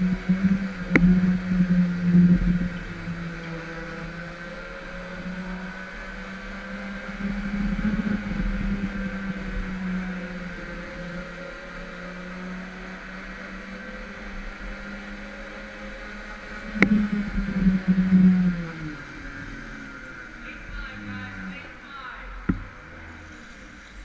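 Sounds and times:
go-kart motor drone with whine: 0:00.0 - 0:24.0.

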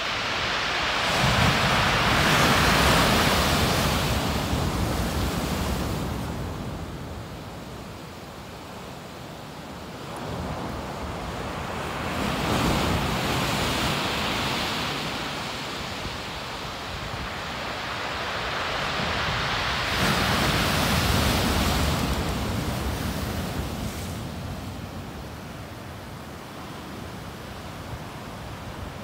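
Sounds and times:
rough surf breaking: 0:00.0 - 0:06.6, 0:10.2 - 0:25.2.

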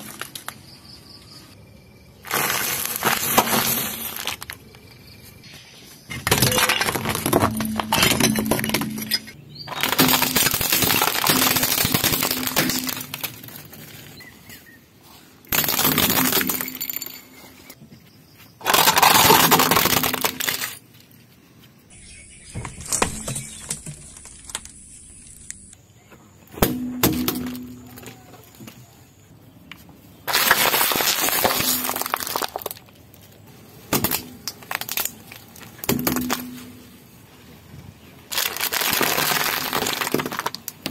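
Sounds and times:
tyre crushing plastic: 0:02.2 - 0:04.7, 0:06.1 - 0:14.6, 0:15.5 - 0:17.0, 0:18.6 - 0:21.0, 0:30.3 - 0:36.8, 0:38.3 - 0:40.9
sharp plastic cracks: 0:09.7 - 0:13.8, 0:33.9 - 0:36.5, 0:38.3 - 0:40.9.

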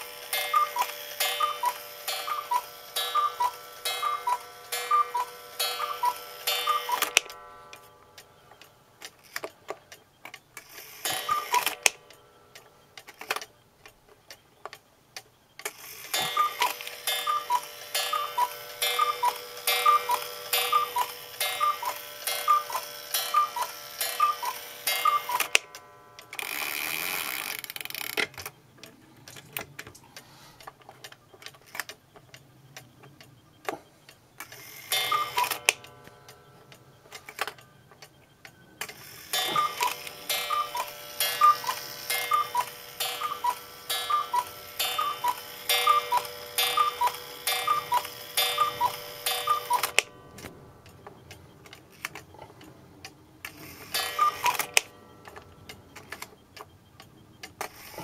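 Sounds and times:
two-note cuckoo call: 0:00.0 - 0:07.4, 0:11.1 - 0:12.8, 0:16.2 - 0:26.4, 0:34.9 - 0:51.5, 0:54.0 - 0:56.0
clock ticking: 0:00.0 - 0:58.0
whirr of clock strike train: 0:00.0 - 0:58.0.

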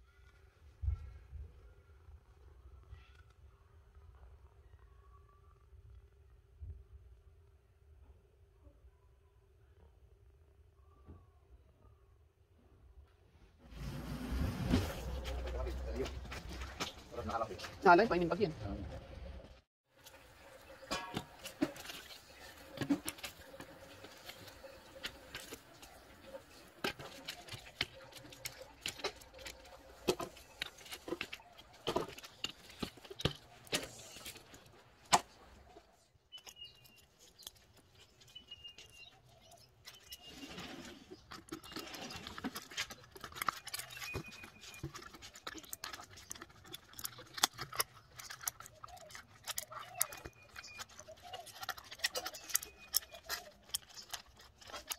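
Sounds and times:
cardboard pieces clicking and clattering: 0:21.6 - 0:35.4, 0:41.0 - 0:54.9.

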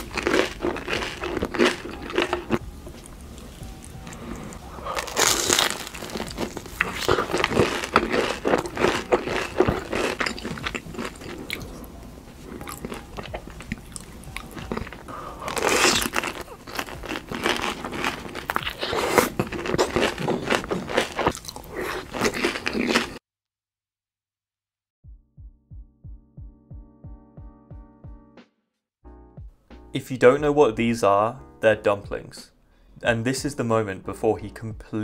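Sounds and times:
crunchy chewing: 0:00.0 - 0:23.2.

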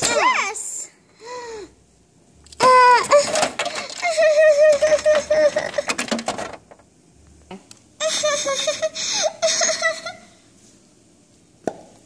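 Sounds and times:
girl pretend crying: 0:03.9 - 0:05.9.

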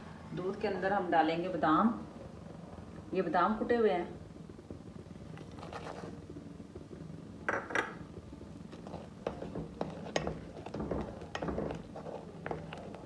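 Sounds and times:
spoon stirring in a metal saucepan: 0:08.7 - 0:13.0.

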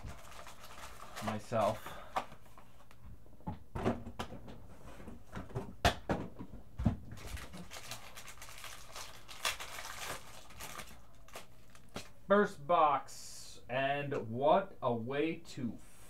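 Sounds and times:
packaging rustling: 0:00.0 - 0:02.9, 0:07.1 - 0:12.2.

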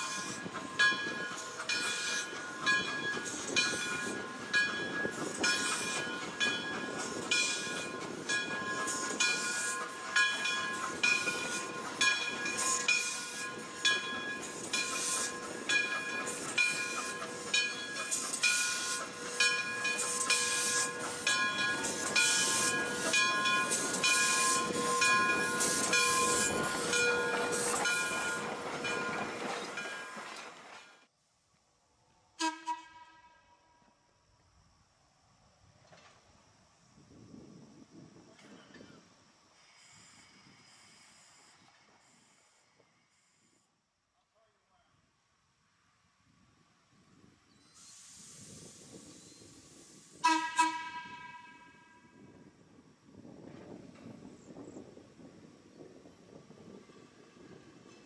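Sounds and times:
steam hissing: 0:00.0 - 0:29.4, 0:38.4 - 0:43.7, 0:47.5 - 0:52.4
locomotive bell ringing: 0:00.0 - 0:30.4.

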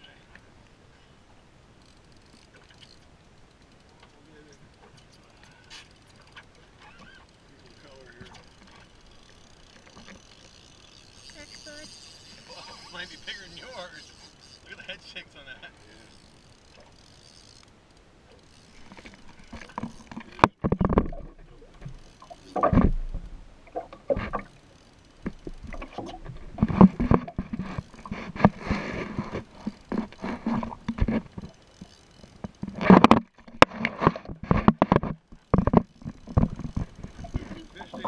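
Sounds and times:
water splashing against boat hull: 0:18.8 - 0:24.6, 0:25.2 - 0:31.8, 0:32.4 - 0:38.0.

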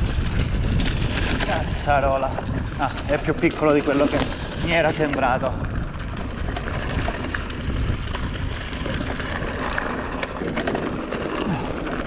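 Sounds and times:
wind on microphone: 0:00.0 - 0:09.9
bike clicks and rattles: 0:00.0 - 0:12.0
tyres rolling over dirt: 0:00.0 - 0:12.0.

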